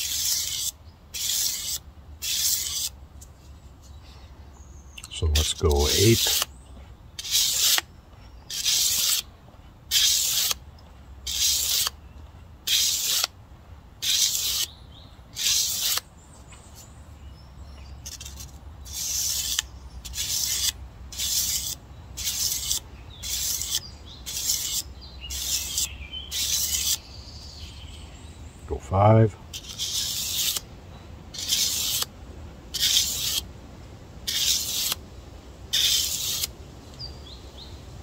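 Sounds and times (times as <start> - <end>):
knife sharpening on whetstone: 0.0 - 2.9, 7.2 - 7.8, 8.5 - 9.2, 9.9 - 10.6, 11.3 - 11.9, 12.7 - 13.3, 14.0 - 14.7, 15.4 - 16.0, 18.0 - 27.0, 29.5 - 30.6, 31.4 - 32.1, 32.8 - 33.4, 34.3 - 35.0, 35.7 - 36.5.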